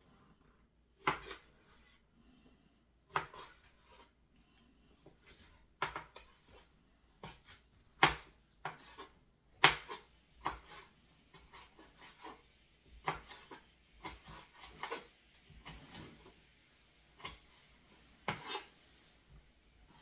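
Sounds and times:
knife chopping on cutting board: 0:01.0 - 0:01.8, 0:03.1 - 0:04.0, 0:05.1 - 0:12.4, 0:13.0 - 0:16.3, 0:18.2 - 0:18.7.

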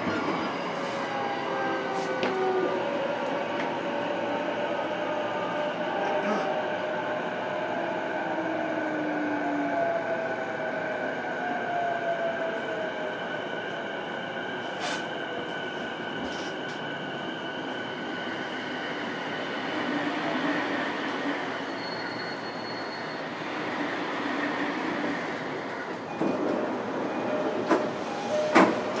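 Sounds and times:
train wheels on rails: 0:00.0 - 0:05.1, 0:12.5 - 0:29.0.

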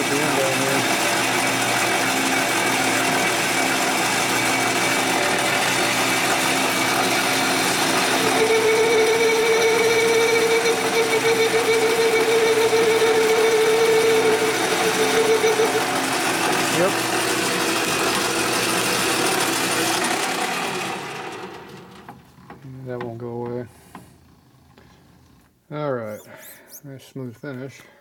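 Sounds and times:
cutter chattering ringing tone: 0:00.0 - 0:17.1
metal lathe running: 0:00.0 - 0:22.1.

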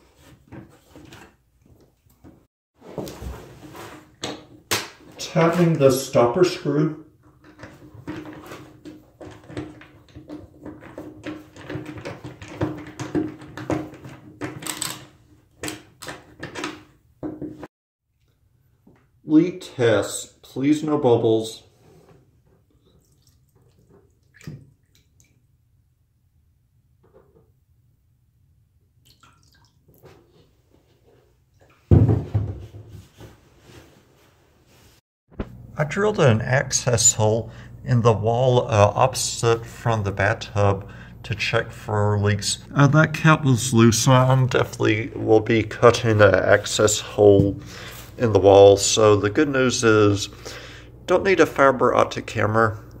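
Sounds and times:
knocking and handling sounds: 0:00.0 - 0:05.7, 0:07.2 - 0:17.7, 0:30.0 - 0:35.6.

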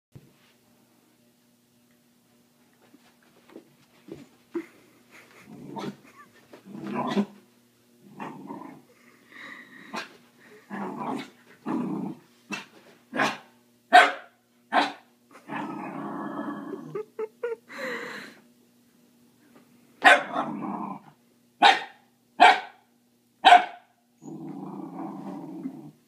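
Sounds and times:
puppy growling: 0:05.3 - 0:07.4, 0:08.0 - 0:09.0, 0:09.8 - 0:12.2, 0:15.3 - 0:17.3, 0:20.3 - 0:21.2, 0:24.2 - 0:26.0
puppy barking: 0:13.2 - 0:15.1, 0:20.0 - 0:20.5, 0:21.6 - 0:22.8, 0:23.4 - 0:23.9.

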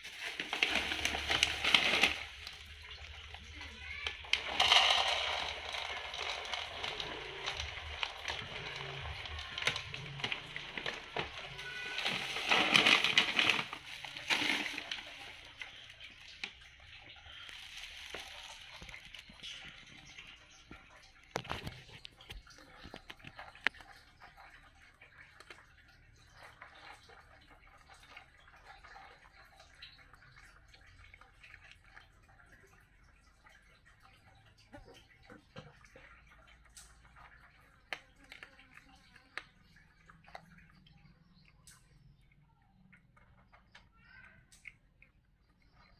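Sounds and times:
cat crunching kibble: 0:00.0 - 0:19.9
plastic bag and kibble rustling: 0:00.0 - 0:23.9.

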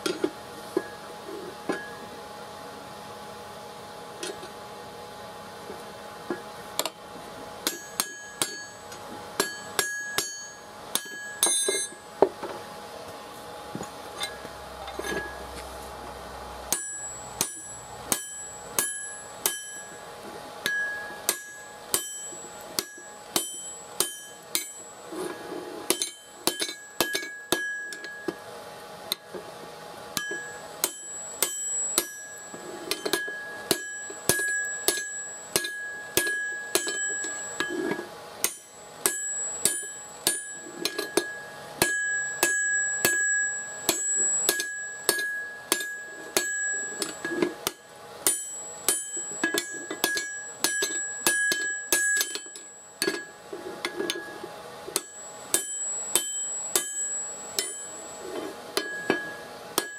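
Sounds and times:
hammer striking metal on anvil: 0:01.7 - 0:02.1, 0:07.6 - 0:12.0, 0:14.2 - 0:15.5, 0:16.7 - 0:20.0, 0:20.6 - 0:28.4, 0:30.2 - 0:59.9.

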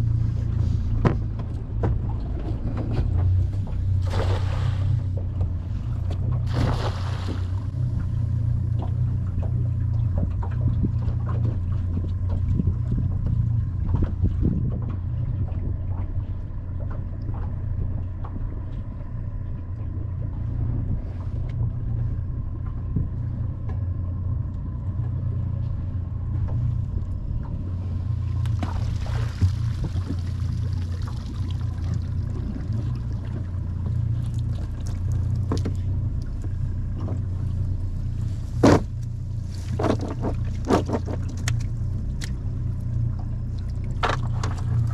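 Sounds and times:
low rumble: 0:00.0 - 0:44.9
net splashing on water: 0:04.0 - 0:05.0, 0:06.4 - 0:07.6, 0:28.5 - 0:32.0
rush of water: 0:04.0 - 0:05.2, 0:06.4 - 0:07.8, 0:28.2 - 0:33.5.

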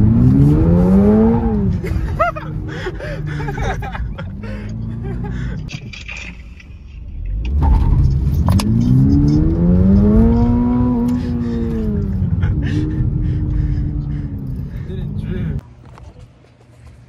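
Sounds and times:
car engine revving from inside cabin: 0:00.0 - 0:01.7, 0:07.5 - 0:14.6.

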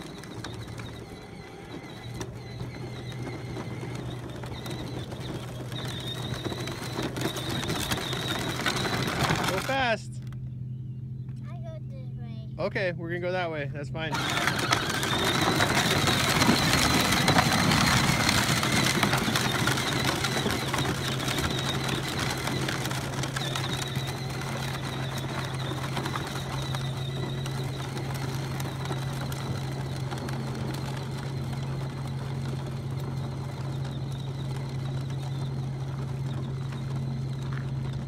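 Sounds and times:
plastic wheels crunching on gravel: 0:00.0 - 0:10.4, 0:13.2 - 0:38.0
electric motor whine: 0:14.0 - 0:38.0.

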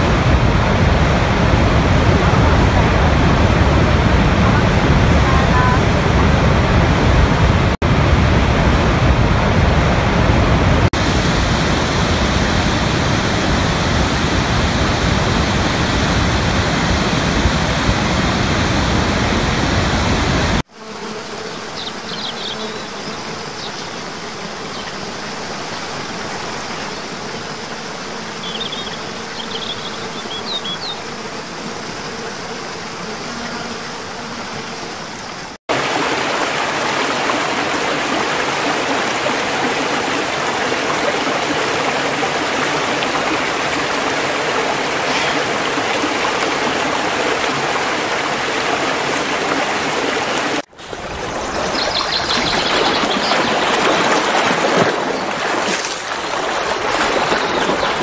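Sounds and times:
stream tumbling between boulders: 0:35.7 - 0:58.0
water rushing over rocks: 0:35.7 - 0:58.0.

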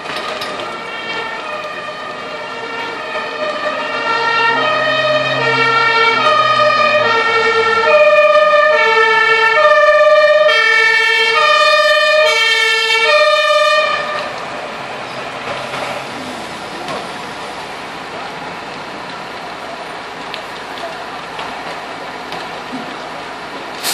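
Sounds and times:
two-tone emergency siren: 0:00.0 - 0:14.4
engine and street noise: 0:00.0 - 0:23.9.

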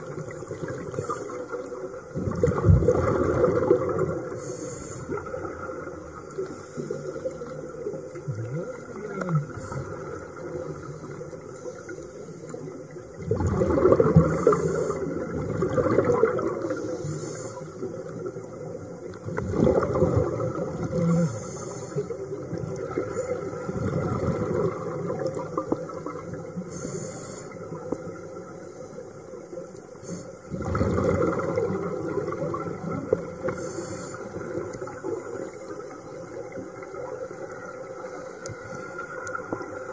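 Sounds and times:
exhaled bubbles gurgling: 0:00.0 - 0:39.9
regulator breathing hiss: 0:04.4 - 0:05.2, 0:09.5 - 0:10.1, 0:14.3 - 0:15.2, 0:16.7 - 0:17.9, 0:21.1 - 0:22.2, 0:26.7 - 0:27.7, 0:30.0 - 0:30.5, 0:33.5 - 0:34.4.

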